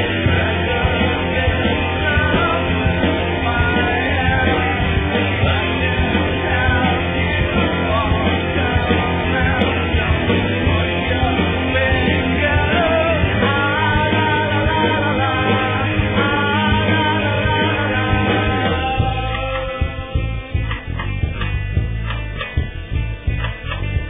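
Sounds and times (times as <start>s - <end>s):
loud rock song with singing: 0.0s - 24.0s.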